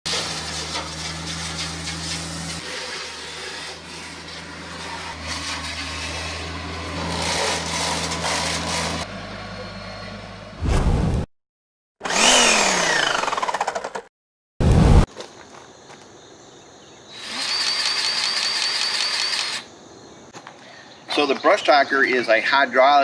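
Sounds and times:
rotary cutter chopping brush: 0:00.1 - 0:09.1, 0:12.0 - 0:14.1
tractor diesel engine running: 0:00.1 - 0:10.6.

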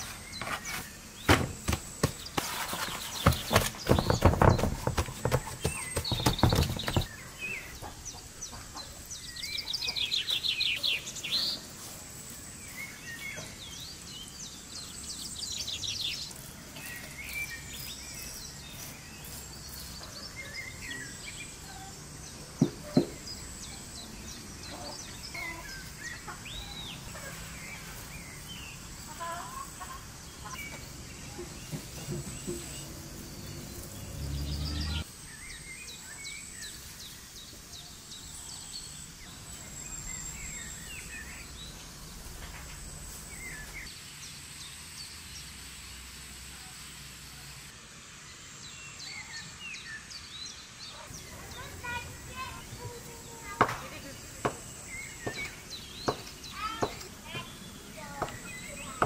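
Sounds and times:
birds chirping and calling: 0:00.0 - 0:44.0, 0:48.9 - 0:59.0
fast rhythmic bird trill: 0:03.2 - 0:07.2.

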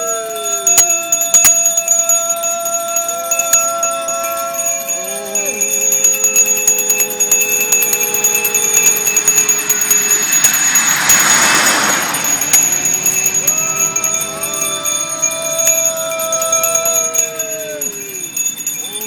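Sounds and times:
monks chanting long calls: 0:00.0 - 0:19.0.

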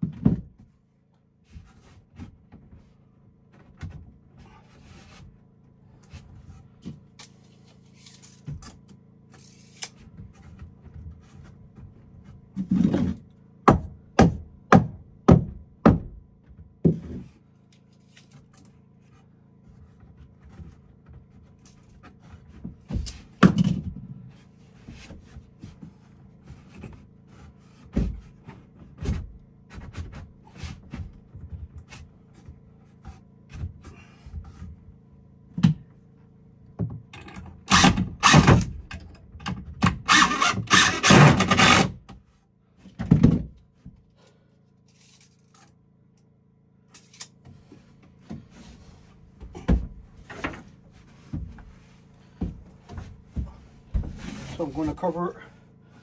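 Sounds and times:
knocks and thuds on wood: 0:00.0 - 0:00.7, 0:10.1 - 0:17.3, 0:19.9 - 0:24.2, 0:24.9 - 0:34.8, 0:35.5 - 0:35.9, 0:36.8 - 0:42.2, 0:42.8 - 0:44.0, 0:47.4 - 0:54.6.

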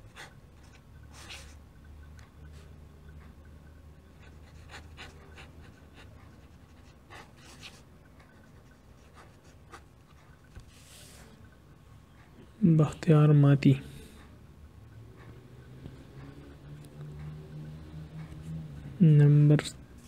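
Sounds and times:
pen scratching on paper: 0:00.0 - 0:01.6, 0:04.2 - 0:11.3.

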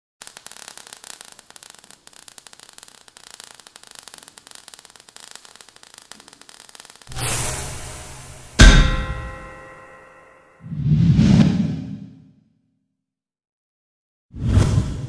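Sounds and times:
crackling sputtering sparks: 0:00.2 - 0:10.5.

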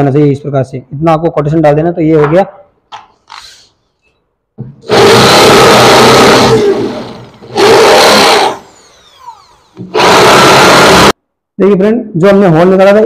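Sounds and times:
electric drill boring into wood: 0:04.8 - 0:11.2.

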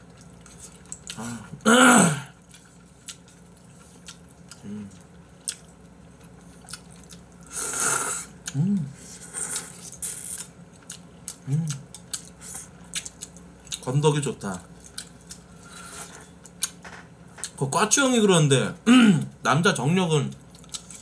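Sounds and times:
person humming: 0:08.5 - 0:09.0.

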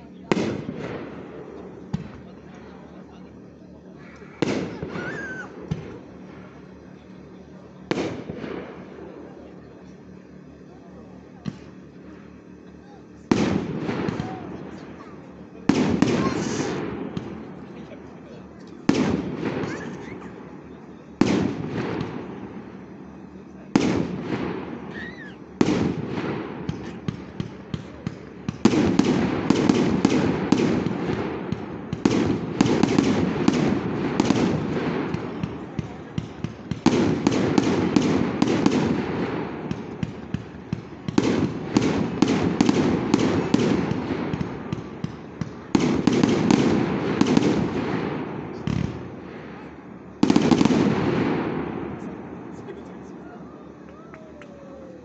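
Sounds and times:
firework shells bursting: 0:18.6 - 0:49.1, 0:50.2 - 0:52.0.

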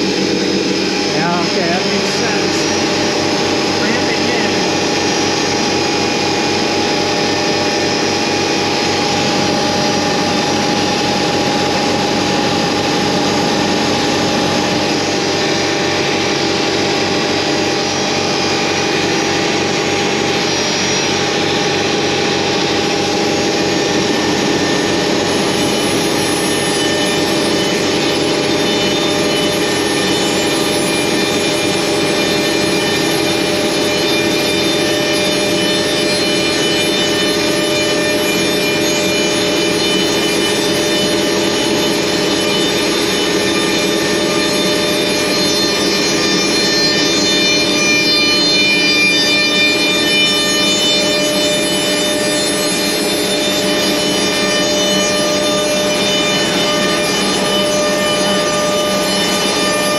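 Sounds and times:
dust collection running: 0:00.0 - 0:26.4
cnc router spindle whining: 0:00.0 - 0:59.9.

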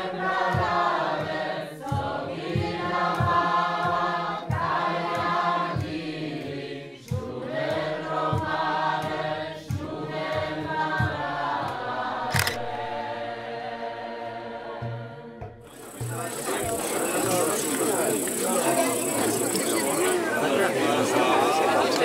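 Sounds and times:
choir singing sustained chords: 0:00.0 - 0:22.0
sharp click: 0:12.3 - 0:12.8
steady low beat: 0:15.7 - 0:21.8.

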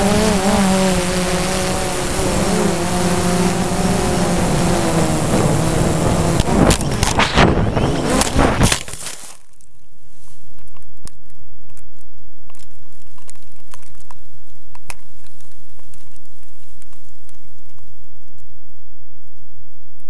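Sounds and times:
drone rotors tumbling: 0:00.0 - 0:09.4
faint ticks and crackles: 0:08.2 - 0:20.0.

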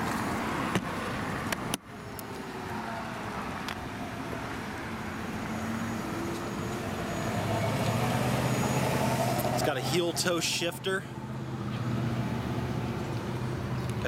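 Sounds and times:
road traffic noise: 0:00.0 - 0:14.0.

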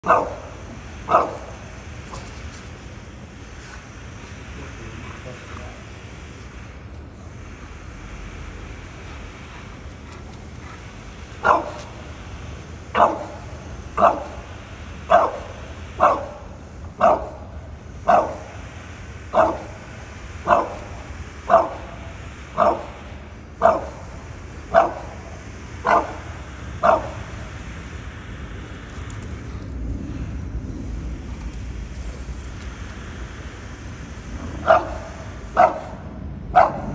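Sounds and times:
dog barking: 0:00.0 - 0:02.4, 0:11.4 - 0:12.0, 0:12.9 - 0:13.4, 0:14.0 - 0:14.4, 0:15.1 - 0:16.4, 0:17.0 - 0:17.4, 0:18.1 - 0:18.5, 0:19.3 - 0:19.8, 0:20.5 - 0:20.9, 0:21.5 - 0:21.9, 0:22.6 - 0:23.0, 0:23.6 - 0:24.0, 0:24.7 - 0:27.4, 0:34.6 - 0:36.9.

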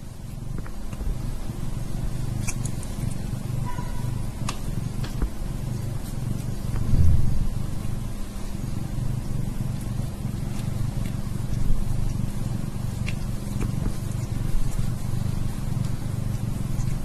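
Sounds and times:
cat purring: 0:00.3 - 0:17.0
cat licking ticks: 0:07.7 - 0:17.0.

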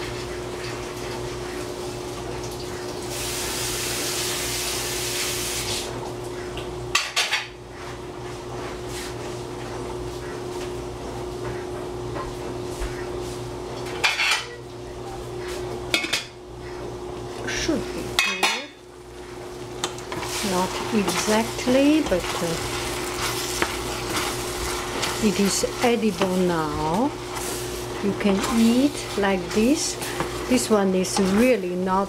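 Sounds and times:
tap water running: 0:00.0 - 0:06.8, 0:19.2 - 0:32.0
steady low hum: 0:05.9 - 0:32.0
metal pots clinking: 0:18.1 - 0:18.8.

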